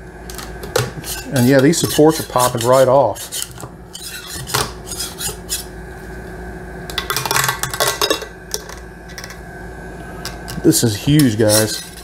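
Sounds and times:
faint steady hum: 0.0s - 12.0s
metal scraper scraping: 0.8s - 5.7s, 11.1s - 12.0s.

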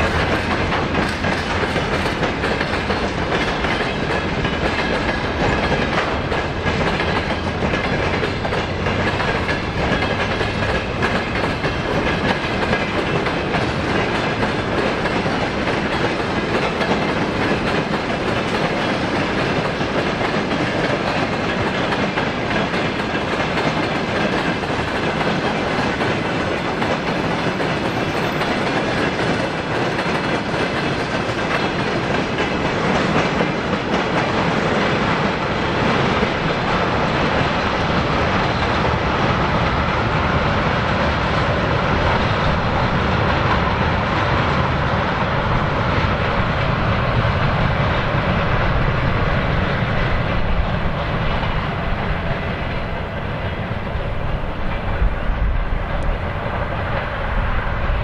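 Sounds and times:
freight train wheels on rail: 0.0s - 58.0s.

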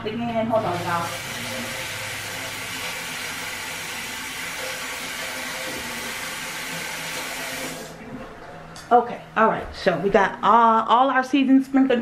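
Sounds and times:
faucet water running into sink: 0.6s - 8.0s.

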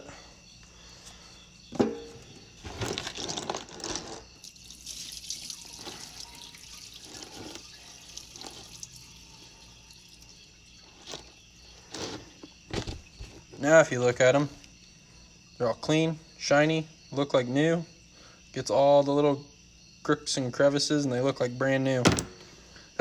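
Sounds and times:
liquid trickling and splashing: 4.4s - 10.8s.

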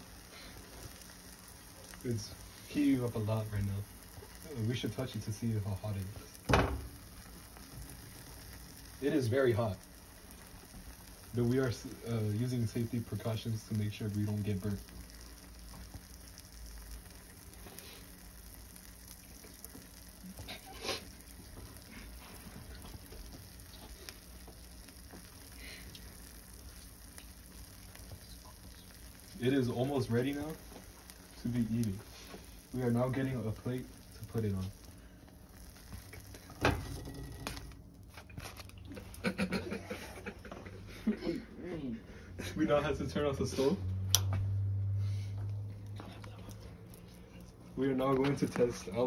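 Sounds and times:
food sizzling in a pan: 0.0s - 41.4s, 42.5s - 49.0s
loud pop: 6.4s - 7.0s.

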